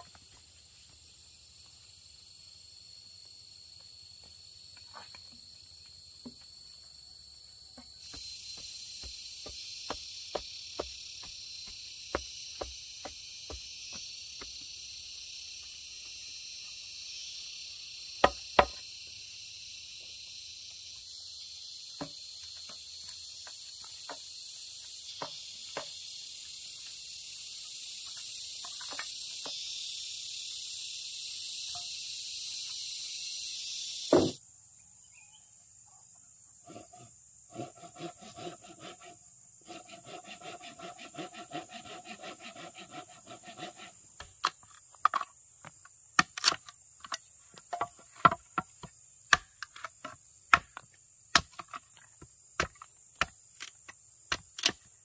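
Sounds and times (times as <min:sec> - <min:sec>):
insects chorus: 0:00.0 - 0:55.0
stick knocking soil: 0:08.0 - 0:14.7
high insect note: 0:24.4 - 0:34.4.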